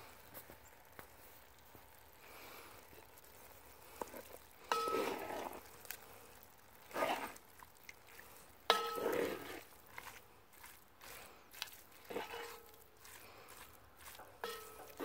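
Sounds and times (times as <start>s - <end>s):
wooden spoon scraping a pot: 4.0s - 5.7s, 6.9s - 7.4s, 8.7s - 10.2s, 11.0s - 15.0s
spoon knocking a ringing pot: 14.4s - 15.0s.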